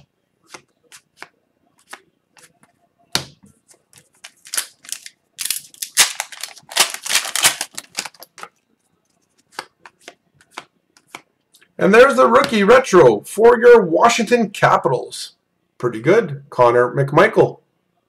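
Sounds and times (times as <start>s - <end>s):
foil pack tearing and crinkling: 4.2s - 8.3s.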